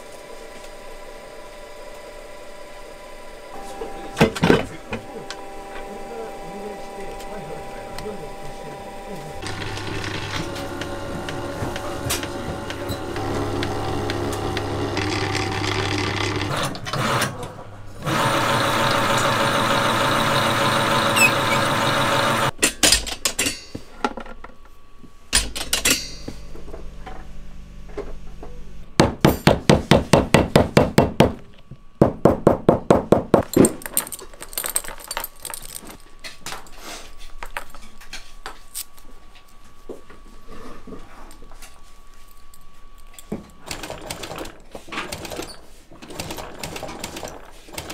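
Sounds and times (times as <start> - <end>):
machine droning: 0.0 - 22.6
handling leather pieces: 33.4 - 43.7.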